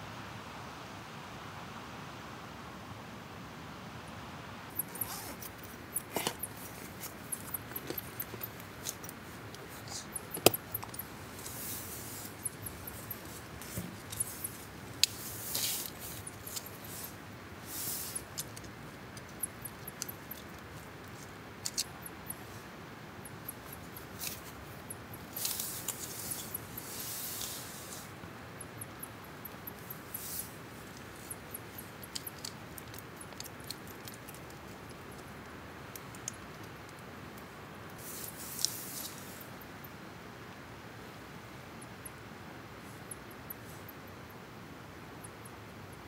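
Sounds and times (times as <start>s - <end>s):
background hiss: 0.0s - 46.0s
small clicks taps and rustles: 4.7s - 17.2s, 18.0s - 22.5s, 28.7s - 39.3s.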